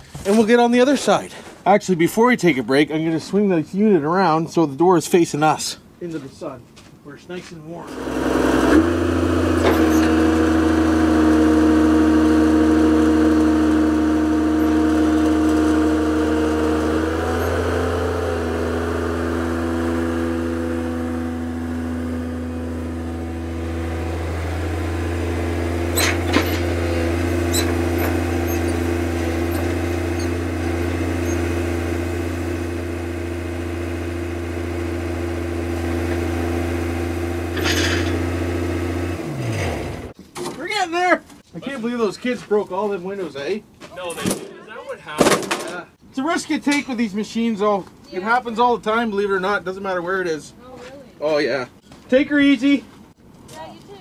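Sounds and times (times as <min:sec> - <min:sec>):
excavator diesel engine running: 0:07.9 - 0:40.1
metal clank: 0:25.9 - 0:31.4, 0:37.5 - 0:38.3.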